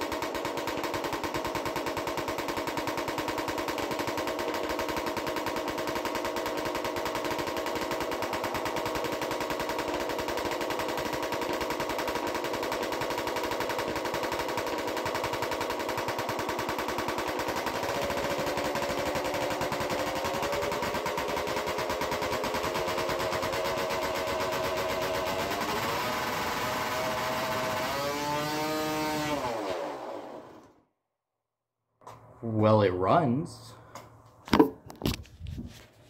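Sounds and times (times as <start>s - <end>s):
two-stroke motorcycle engine revving: 3.7s - 30.7s.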